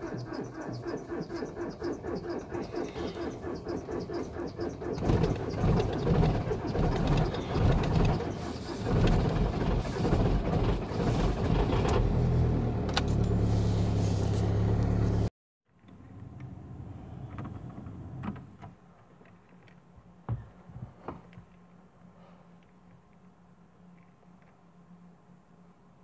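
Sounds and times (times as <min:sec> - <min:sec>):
diesel engine cranking: 0:00.0 - 0:15.3
diesel engine idling: 0:00.0 - 0:15.3.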